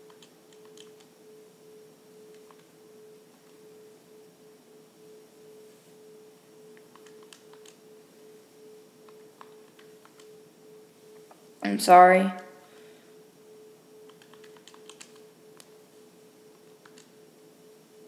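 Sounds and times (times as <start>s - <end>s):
calculator keys clicking: 0.0s - 1.1s, 6.8s - 7.8s, 9.1s - 10.3s, 14.1s - 15.7s, 16.8s - 17.1s
faint electrical tone: 0.0s - 18.0s.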